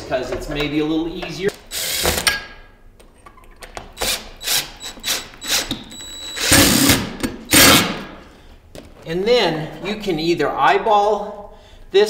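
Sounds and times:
cordless drill driving screw: 1.7 - 2.3, 4.0 - 7.9.

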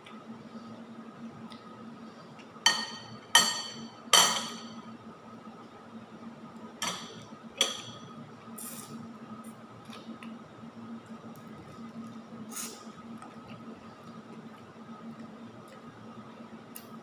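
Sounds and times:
faint steady hum: 0.0 - 17.0
cutlery clinking against dishes: 2.7 - 4.8, 6.8 - 8.0.

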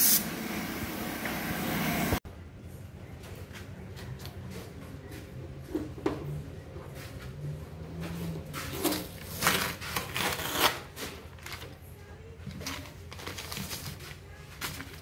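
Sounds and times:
newspaper rustling and crinkling: 12.5 - 15.0.

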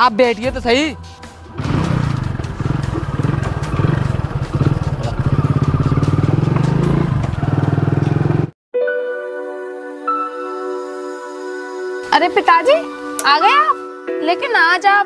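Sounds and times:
soft music: 0.0 - 1.6, 8.8 - 15.0
motorcycle engine under load: 1.5 - 8.6.

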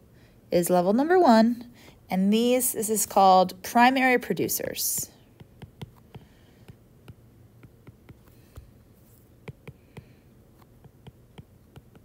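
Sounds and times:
stylus tapping on glass screen: 5.4 - 8.7, 9.4 - 10.2, 10.8 - 12.0.

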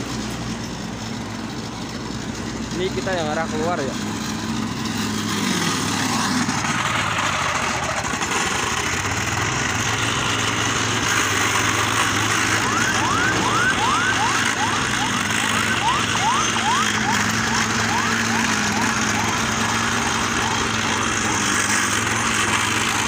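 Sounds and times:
engine hum: 0.0 - 23.0
grinding on asphalt: 0.0 - 23.0
rapid rising siren-like chirp: 11.8 - 23.0.

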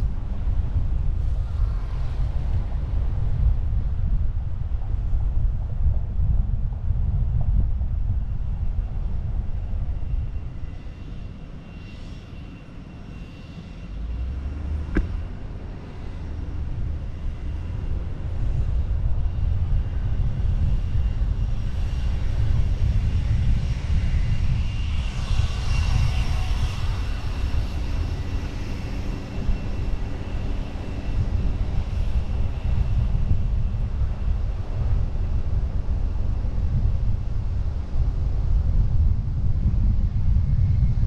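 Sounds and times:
wind buffeting microphone: 0.0 - 41.0
car road rumble: 13.9 - 21.4.

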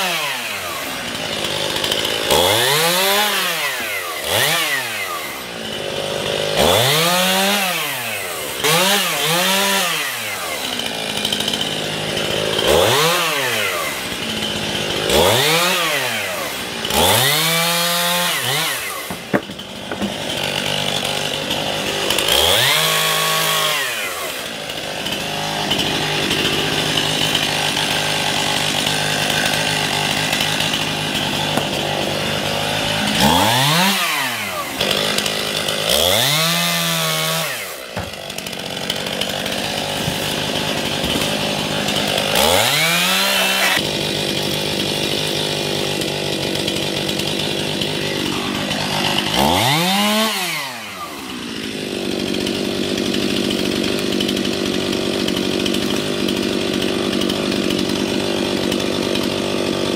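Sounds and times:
chainsaw revving: 0.0 - 59.9.

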